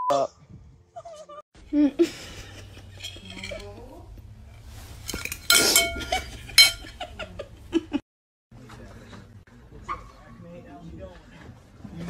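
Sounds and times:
plate and fork clinking: 2.4 - 3.9, 5.0 - 7.1.

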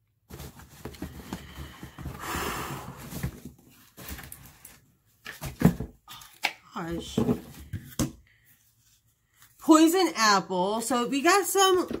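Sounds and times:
packaging rustling: 0.3 - 6.5.

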